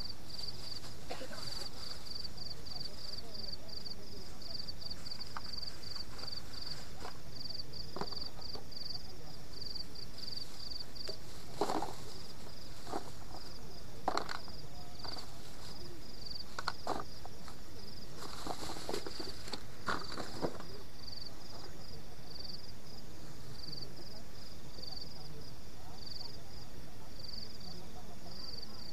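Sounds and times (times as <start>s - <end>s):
plastic bags rustling: 0.0s - 3.3s, 10.1s - 14.4s, 15.0s - 20.8s
insects chirping: 0.0s - 28.9s.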